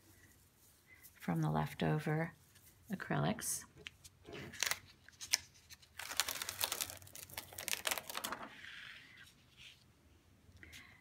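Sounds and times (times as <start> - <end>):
plastic film peeling crackling: 4.5 - 8.5.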